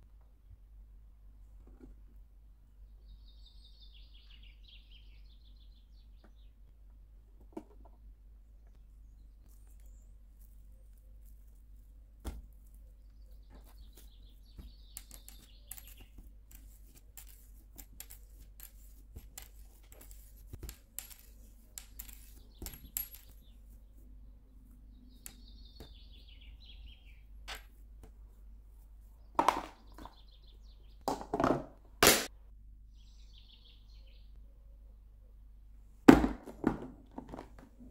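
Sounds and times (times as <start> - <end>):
faint bird chirps: 2.8 - 6.6, 22.3 - 27.3, 32.8 - 35.4
plastic container knocks: 29.4 - 29.8, 31.1 - 31.7, 36.1 - 37.6.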